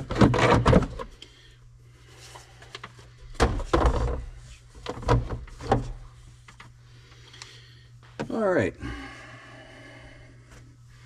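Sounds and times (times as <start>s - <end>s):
tools and plastic trim clattering: 0.0s - 1.1s
low steady hum: 0.0s - 11.0s.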